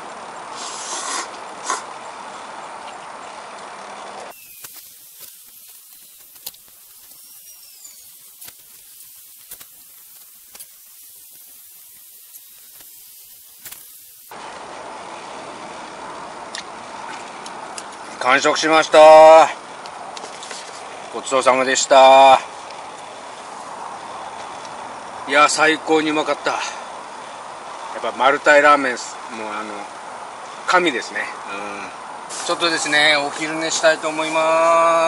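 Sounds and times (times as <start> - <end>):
person slurping broth: 0.6 - 1.9
small clicks: 2.8 - 14.3
faint high hiss: 4.3 - 15.4.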